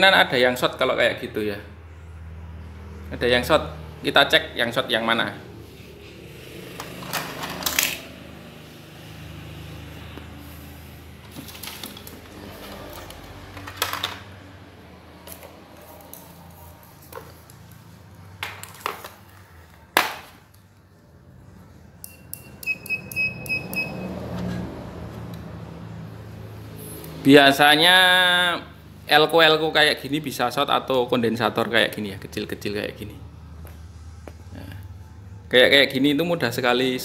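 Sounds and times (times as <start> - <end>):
multimeter continuity buzzer beeps: 22.0 - 24.2.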